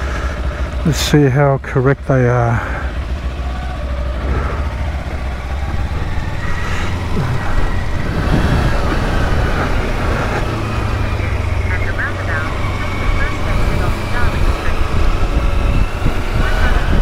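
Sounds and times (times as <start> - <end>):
motorcycle engine running: 0.0 - 17.0
road noise: 0.0 - 17.0
wind rushing on microphone: 5.8 - 17.0.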